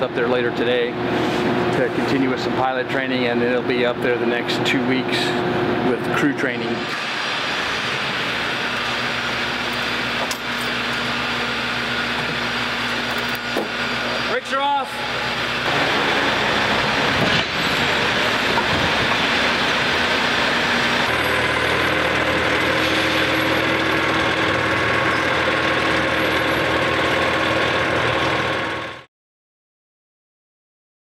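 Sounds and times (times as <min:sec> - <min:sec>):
helicopter engine noise: 0:06.6 - 0:29.1.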